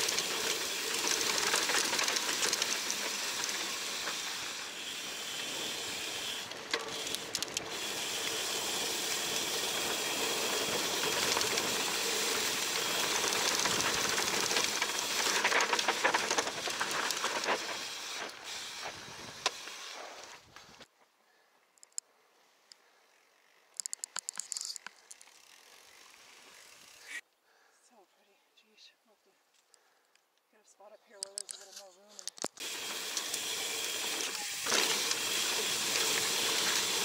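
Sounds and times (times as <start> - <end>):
bike rattling: 0.0 - 20.4, 32.3 - 37.0
bike tyre noise on dirt: 0.0 - 21.0, 23.4 - 27.2, 32.5 - 37.0.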